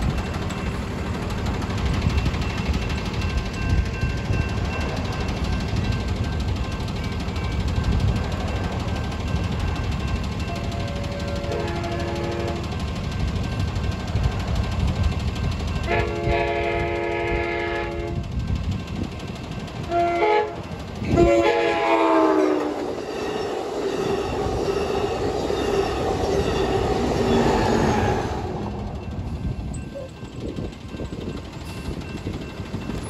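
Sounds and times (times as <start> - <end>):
train wheels clattering on rails: 0.0 - 33.0
train horn blasts: 10.8 - 12.7, 15.9 - 18.2, 19.9 - 23.0.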